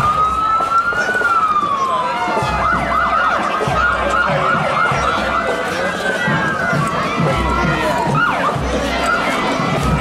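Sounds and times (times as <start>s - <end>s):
emergency vehicle siren: 0.0s - 10.0s.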